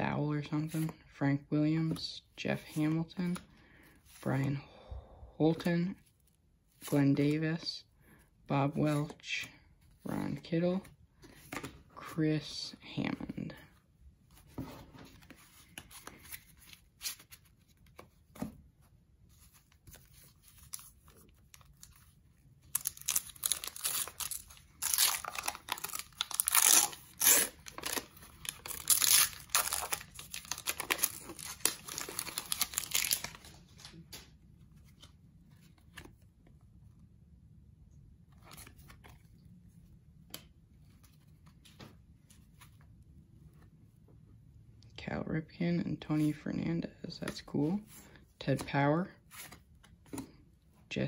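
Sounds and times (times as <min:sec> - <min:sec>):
wrapper tearing and crinkling: 0:22.6 - 0:34.0.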